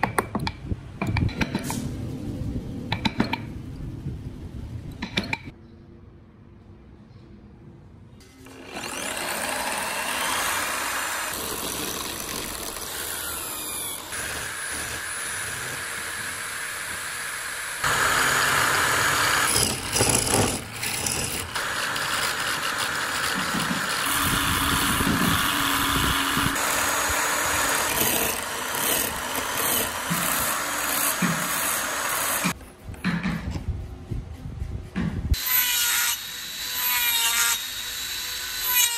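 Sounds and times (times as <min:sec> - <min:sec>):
electric drill running: 0:08.5 - 0:32.6.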